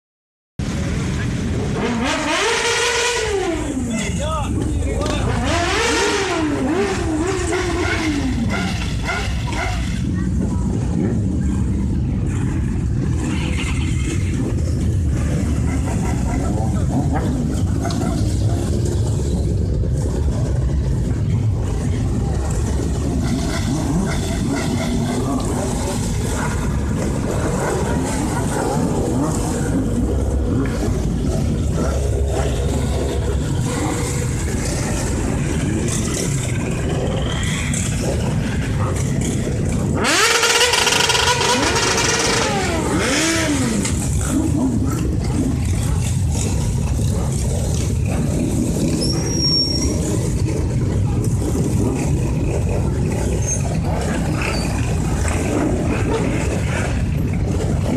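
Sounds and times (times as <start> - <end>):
motorcycle engines idling and revving: 0.6 - 57.9
people talking: 3.6 - 5.6, 9.2 - 12.7
engine revving hard close by: 5.0 - 11.6, 12.5 - 57.9.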